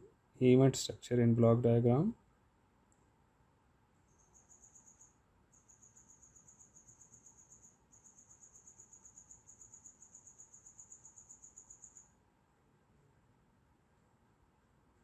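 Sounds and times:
cricket chirping: 0:04.0 - 0:12.2.

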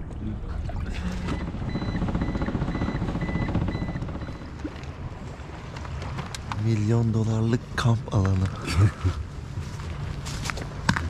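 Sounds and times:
outboard motor running: 0:00.8 - 0:06.2
high electronic beeps: 0:01.2 - 0:04.6.

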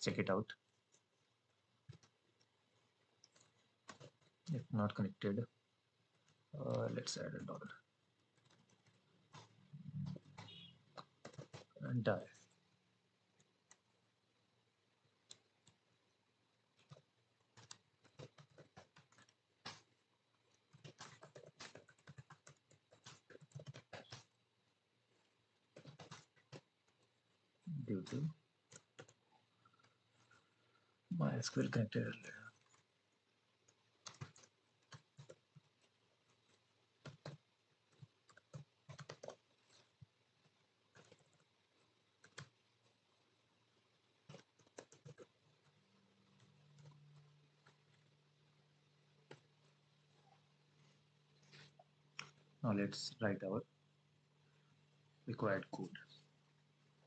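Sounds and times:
typing on computer keyboard: 0:01.8 - 0:02.6, 0:03.2 - 0:04.4, 0:06.2 - 0:11.9, 0:16.7 - 0:24.4, 0:25.7 - 0:30.4, 0:33.6 - 0:48.2.

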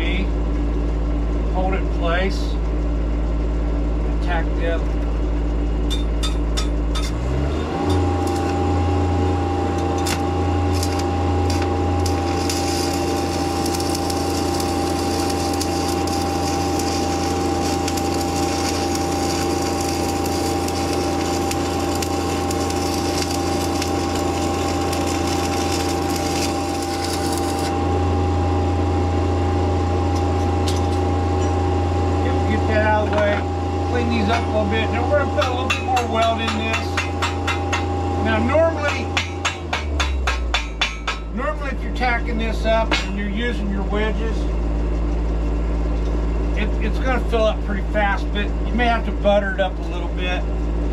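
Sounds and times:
welding machine engine droning: 0:00.0 - 0:50.9
welding arc crackling and hissing: 0:07.8 - 0:28.0, 0:32.2 - 0:44.5.

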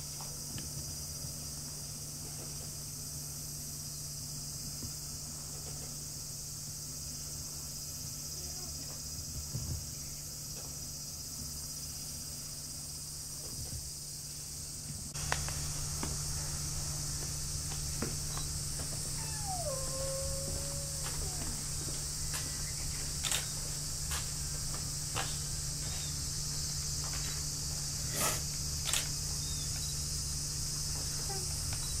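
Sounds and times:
cicadas buzzing: 0:00.0 - 0:32.0
low steady hum: 0:15.2 - 0:25.6.

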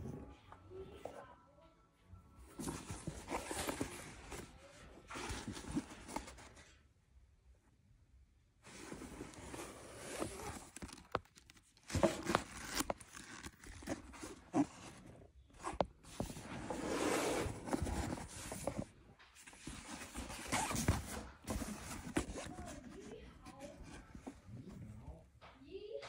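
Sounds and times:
handbag rustling: 0:02.6 - 0:04.5, 0:08.7 - 0:24.5.

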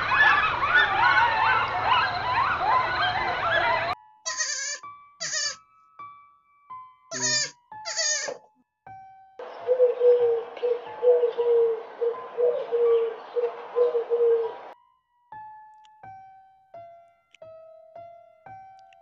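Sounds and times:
goat kid bleating: 0:04.2 - 0:05.6, 0:07.1 - 0:08.4.

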